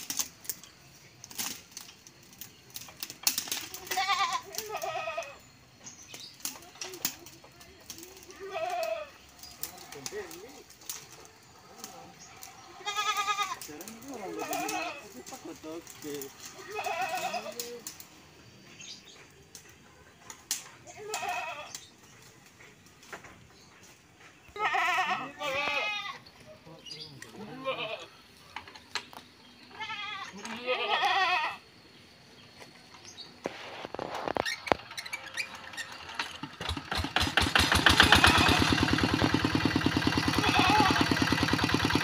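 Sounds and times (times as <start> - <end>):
bleat-like calls: 3.7 - 5.4, 8.2 - 9.2, 12.6 - 15.2, 16.5 - 17.8, 20.9 - 21.8, 24.5 - 26.2, 27.4 - 28.2, 29.7 - 31.6, 38.0 - 38.8, 40.2 - 41.2.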